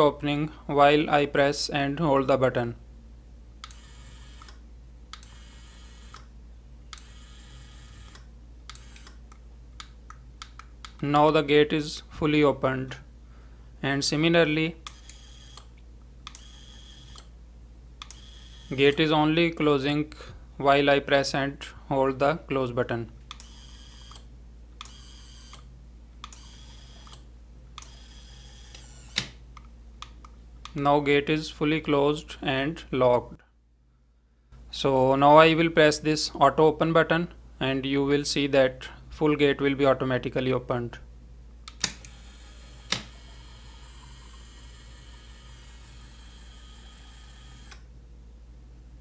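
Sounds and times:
small gear motor whining: 0:27.8 - 0:29.2, 0:42.0 - 0:47.8
sharp click: 0:41.7 - 0:42.2.

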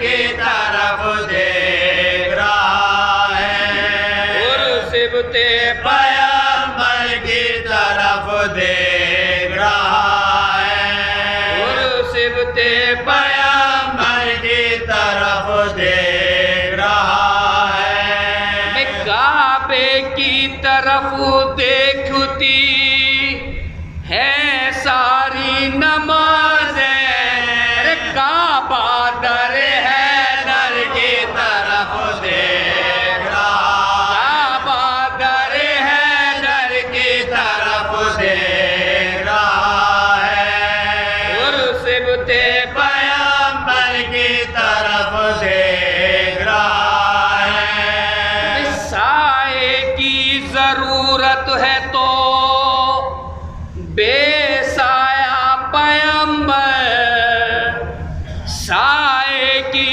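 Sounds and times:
men chanting a lament: 0:00.0 - 0:59.9
man singing lead: 0:47.4 - 0:59.9.

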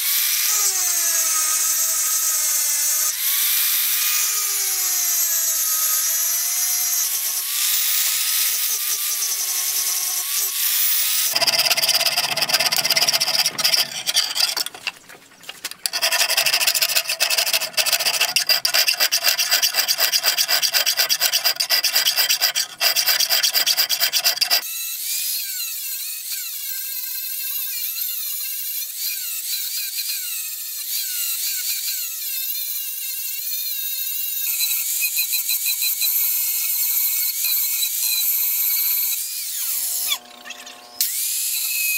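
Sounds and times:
angle grinder grinding steel: 0:00.0 - 0:41.9
file rasping on steel: 0:07.5 - 0:14.9, 0:15.8 - 0:24.7.

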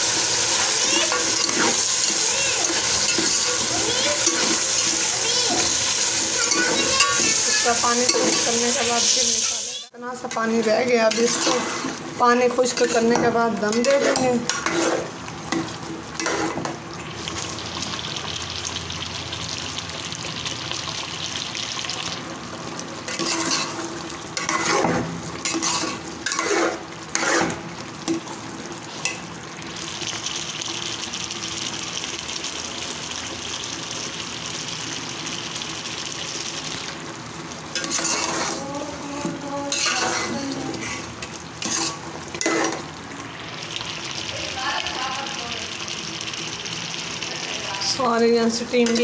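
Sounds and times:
chicken sizzling and bubbling in pot: 0:00.0 - 0:49.0
spoon scraping pot: 0:06.4 - 0:09.5, 0:11.1 - 0:12.0, 0:12.7 - 0:16.7, 0:23.1 - 0:27.6, 0:37.8 - 0:42.9.

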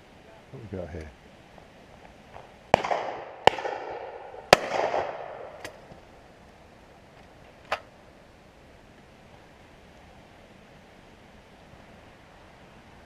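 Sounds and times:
shotgun shots echoing: 0:02.7 - 0:05.9.

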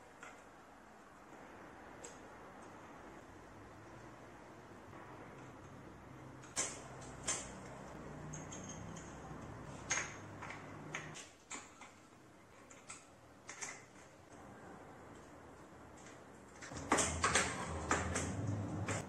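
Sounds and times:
clicks of metal tools and parts: 0:06.4 - 0:14.2.

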